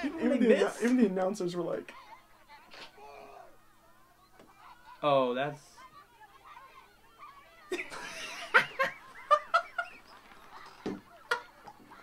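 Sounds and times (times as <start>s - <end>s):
men laughing loudly: 7.3s - 12.0s.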